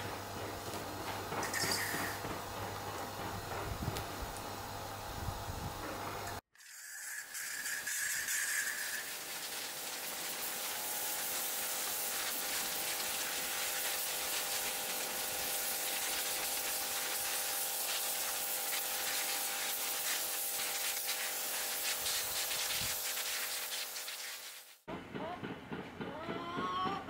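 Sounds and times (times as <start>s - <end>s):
pressure washer spray hissing: 1.4s - 2.2s, 6.6s - 24.9s.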